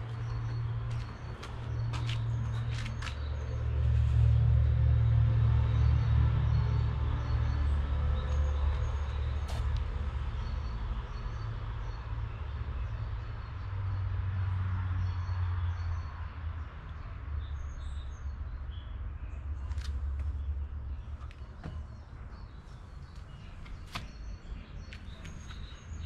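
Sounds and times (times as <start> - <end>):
small birds chirping: 17.0 - 26.0.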